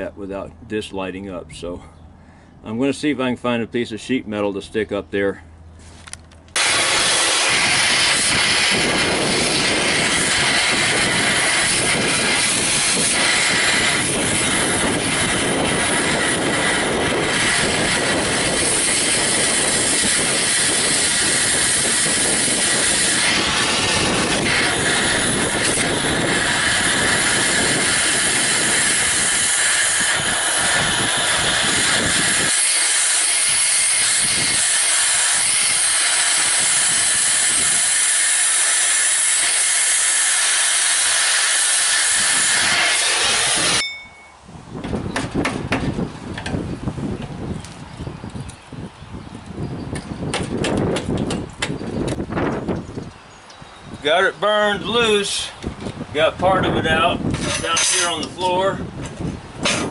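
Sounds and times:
cutting torch hissing: 6.6 - 43.8, 54.0 - 58.8.

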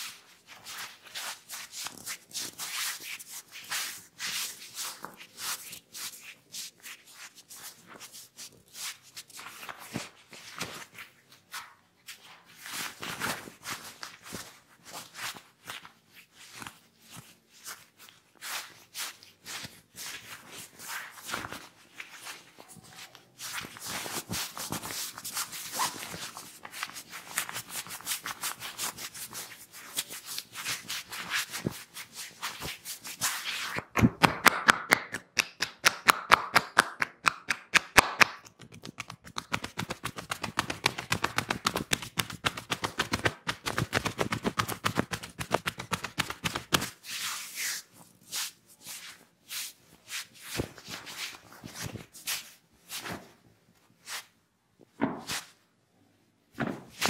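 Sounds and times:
quick sharp slaps: 33.7 - 46.9.

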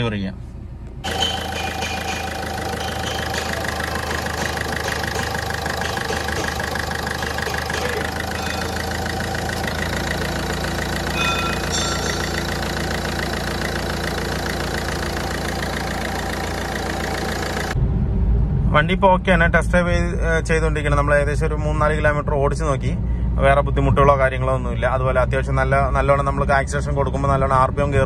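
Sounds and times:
diesel engine idling: 0.6 - 17.8.

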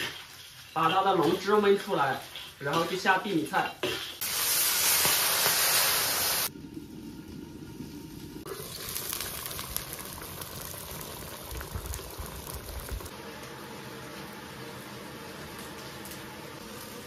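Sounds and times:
water hissing in hot wok: 0.0 - 17.0
broth bubbling: 8.4 - 13.1.

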